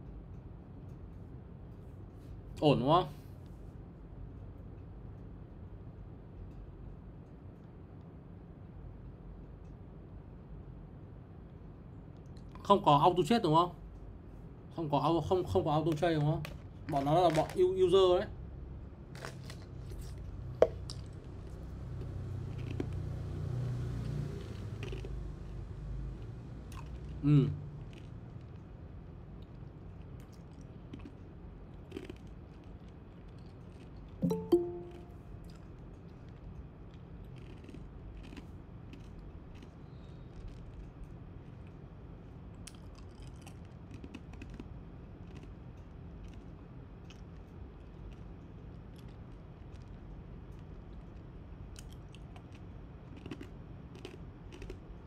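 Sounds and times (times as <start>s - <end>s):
low steady hum: 0.0s - 55.0s.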